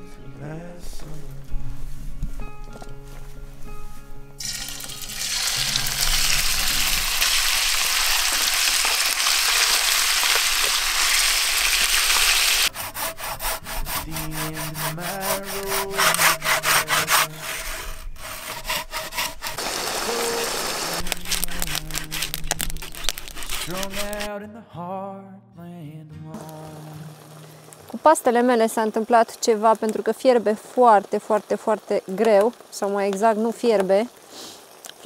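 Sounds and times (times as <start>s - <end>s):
chicken sizzling in a frying pan: 4.4s - 12.7s, 19.6s - 22.0s, 26.4s - 33.4s, 34.1s - 34.8s
wooden spatula scraping a pan: 12.7s - 24.3s.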